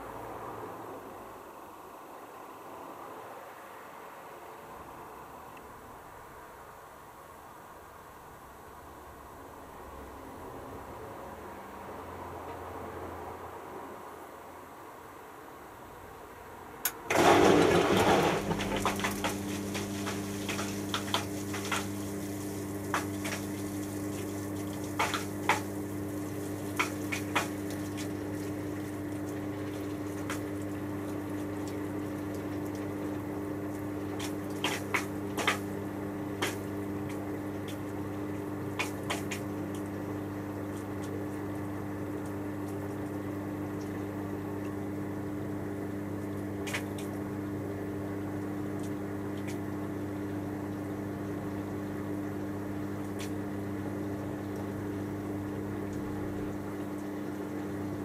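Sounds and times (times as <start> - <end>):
washing machine humming: 16.7 - 58.0
moving water: 17.1 - 35.8
clicks and drips: 18.5 - 35.7, 40.6 - 44.8.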